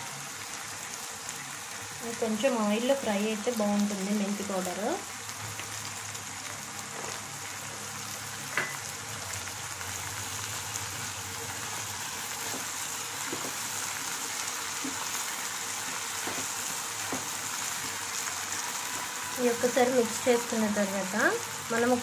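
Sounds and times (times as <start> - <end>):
vegetables sizzling in oil: 0.0 - 22.0
spatula scraping and tapping pan: 16.2 - 17.3.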